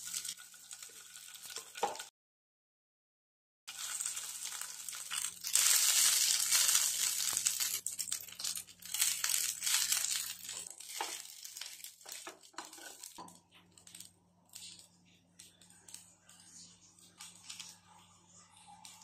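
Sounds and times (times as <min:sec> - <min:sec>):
rice sizzling in oil: 0:00.0 - 0:02.1, 0:03.7 - 0:14.8.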